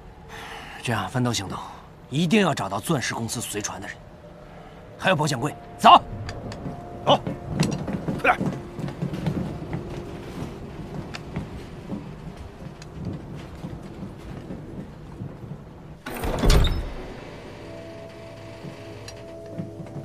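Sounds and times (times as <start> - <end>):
dark rumbling ambience: 0.0 - 20.0
drone of held tones: 17.0 - 20.0.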